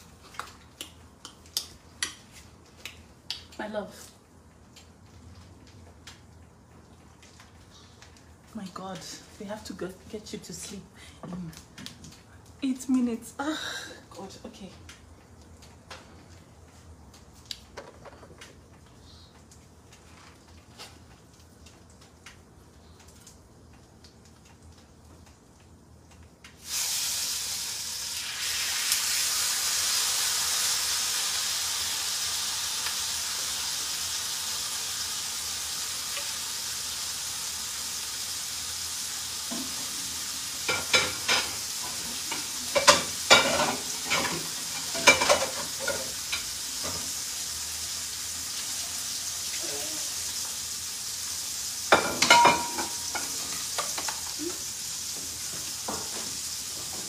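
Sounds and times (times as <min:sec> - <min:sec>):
steak sizzling in a pan: 0:26.6 - 0:57.0.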